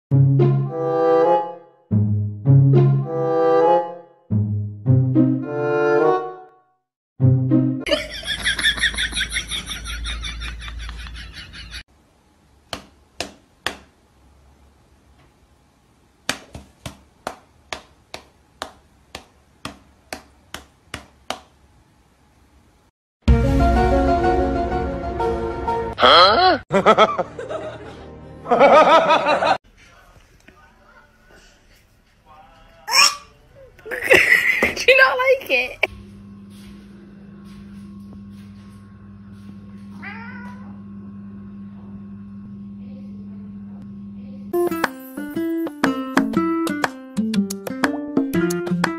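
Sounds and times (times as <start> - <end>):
cat meowing: 39.9 - 40.8.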